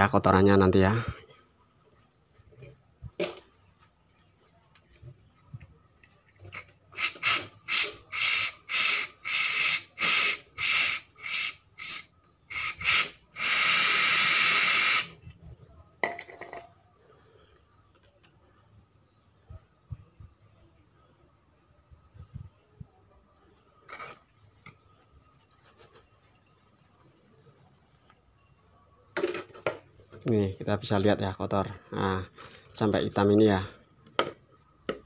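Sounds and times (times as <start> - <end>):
aerosol spray hissing: 7.0 - 15.2.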